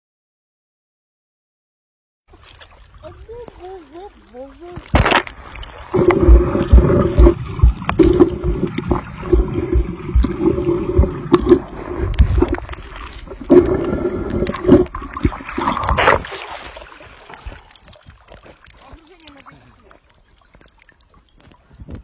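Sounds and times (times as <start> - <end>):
splash into water: 2.3 - 10.4, 14.5 - 21.0
muffled gurgling water: 2.8 - 16.2
low thumps underwater: 4.7 - 16.4.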